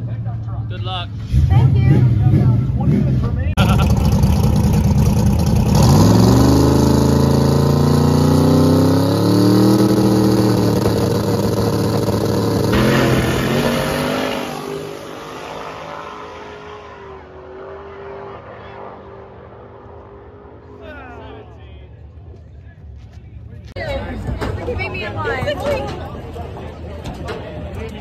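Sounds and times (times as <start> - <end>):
drag car launching and pulling away: 1.2 - 19.7
drag car engine revving: 1.2 - 20.7.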